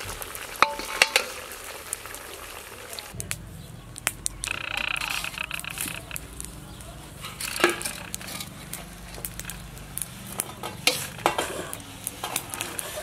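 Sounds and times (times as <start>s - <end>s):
ladle scraping metal pot: 0.6s - 1.4s, 7.2s - 9.6s, 10.3s - 13.0s.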